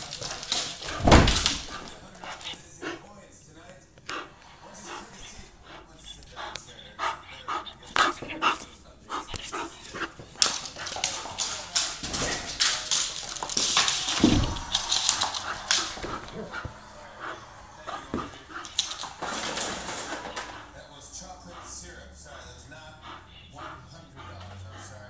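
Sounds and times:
claws scrabbling on wooden floor: 0.0 - 3.0, 7.4 - 20.6
low thump: 1.0 - 1.6.

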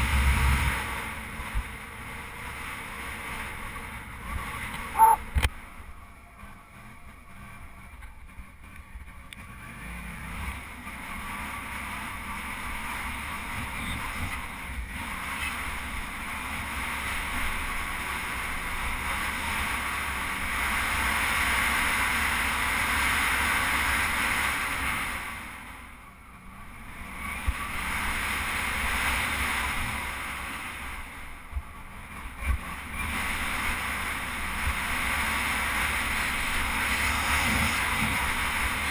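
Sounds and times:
motorcycle engine and tyres: 0.0 - 38.9
wind rush over microphone: 36.2 - 38.9.

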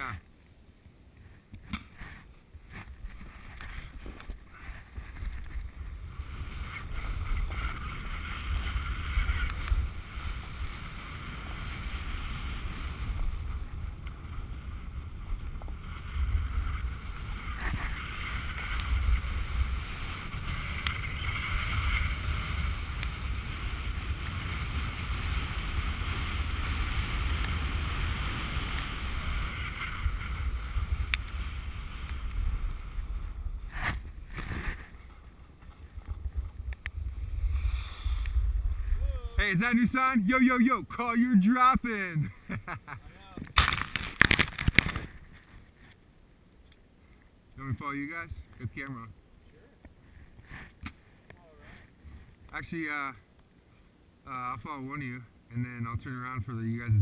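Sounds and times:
snowboard scraping on snow: 2.0 - 40.1
wind buffeting microphone: 2.6 - 39.6, 56.8 - 57.0.

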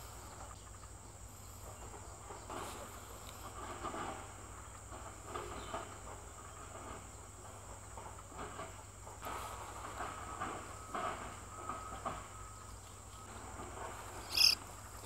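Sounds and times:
high-pitched insect song: 14.1 - 15.0.

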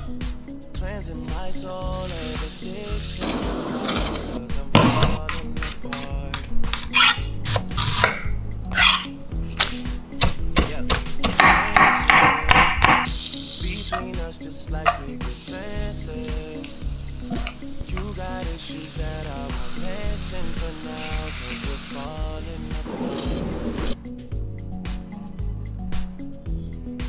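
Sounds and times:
onion and garlic sizzling in pan: 1.7 - 3.3, 13.1 - 14.2, 14.8 - 23.2
knife chopping on wooden board: 10.2 - 13.1.

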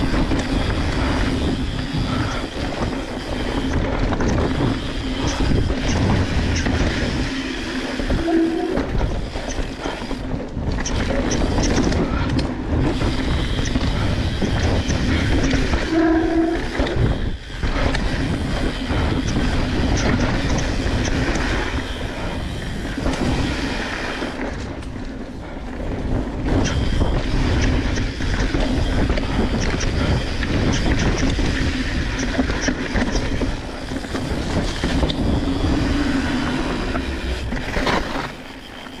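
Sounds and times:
bike rattling over bumps: 0.0 - 39.0
tyres rolling over dirt and rocks: 16.7 - 39.0.

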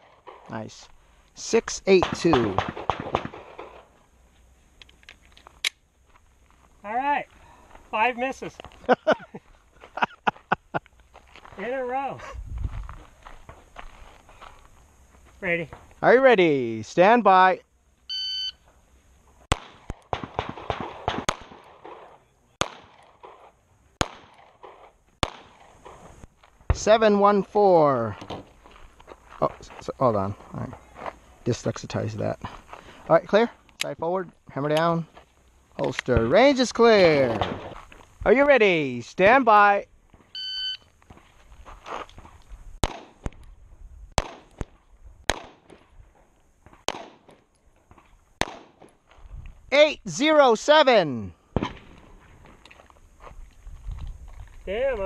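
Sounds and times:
pistol shots: 1.9 - 3.8, 19.5 - 26.0, 42.8 - 43.4, 44.2 - 45.8, 46.8 - 47.5, 48.4 - 49.0, 51.5 - 52.2.

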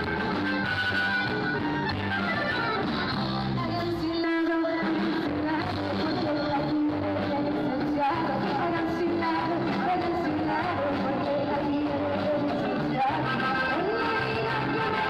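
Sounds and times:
bass: 0.0 - 15.0
drums: 0.0 - 15.0
electric guitar: 0.0 - 15.0
keyboard: 0.0 - 15.0
woman singing: 3.6 - 15.0.

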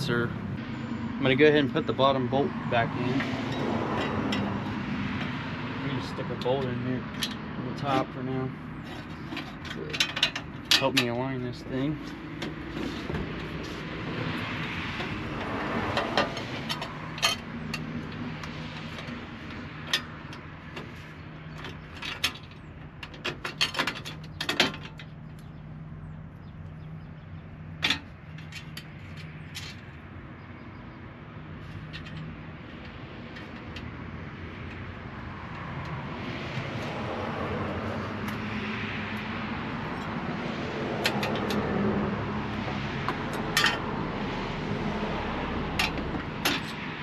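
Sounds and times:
metallic clicks and knocks: 8.9 - 11.3, 14.6 - 20.9, 21.6 - 25.5, 41.0 - 41.7, 45.8 - 46.9.

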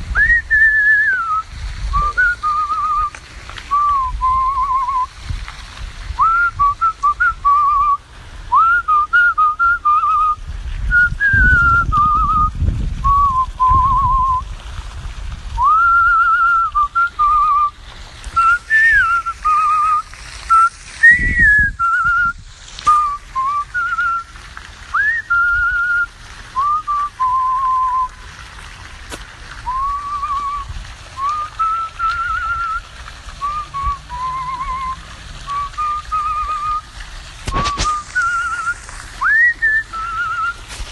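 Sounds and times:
microphone rumbles: 0.0 - 24.2, 33.4 - 40.9
man whistling a tune: 0.2 - 1.4, 2.0 - 3.1, 3.7 - 5.1, 6.2 - 14.4, 15.6 - 17.7, 18.4 - 24.3, 24.9 - 28.1, 29.6 - 36.8, 37.5 - 40.6.

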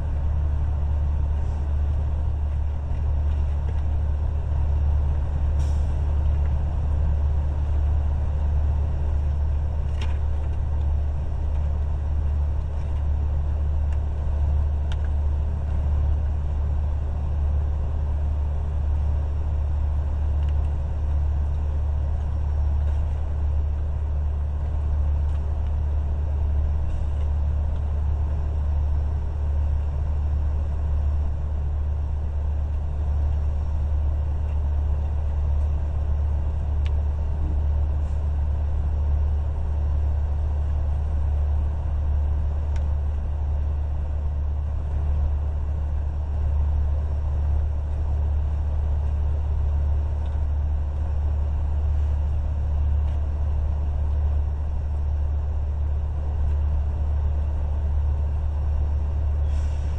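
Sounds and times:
truck engine idling: 0.0 - 59.9.

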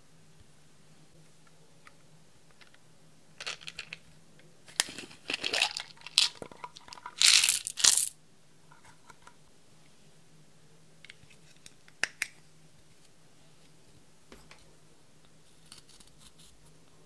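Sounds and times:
plastic container being opened: 4.7 - 8.1
beads rattling onto glass dish: 5.2 - 8.1.

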